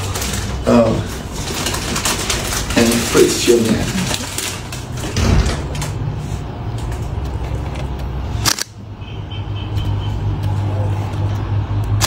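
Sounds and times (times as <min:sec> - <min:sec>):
camera shutter clicks: 0:08.4 - 0:08.7.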